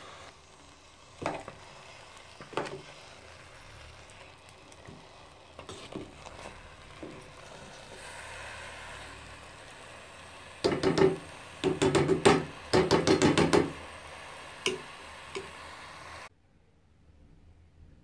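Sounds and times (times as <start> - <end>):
metal spoon knocking on pot: 10.6 - 13.7.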